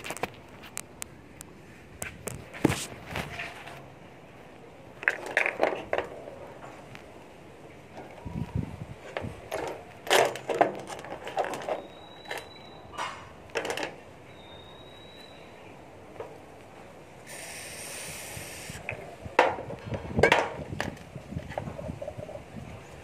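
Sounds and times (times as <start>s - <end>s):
parts set down on concrete floor: 5.0s - 6.8s, 19.4s - 21.0s
steady hiss: 14.9s - 19.4s.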